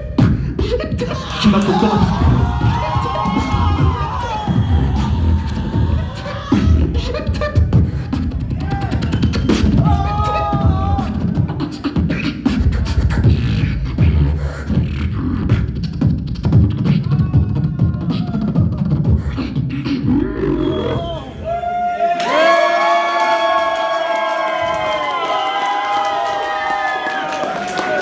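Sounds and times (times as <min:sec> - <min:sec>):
pitched vocal line: 0:00.0 - 0:09.0, 0:09.7 - 0:11.9, 0:16.7 - 0:21.4
beatboxing bass kicks and clicks: 0:00.0 - 0:21.1.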